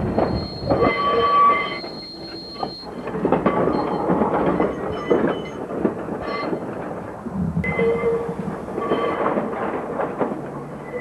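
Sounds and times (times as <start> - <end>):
streetcar running rumble: 0.0 - 11.0
streetcar wheels clicking on rail joints: 0.0 - 11.0.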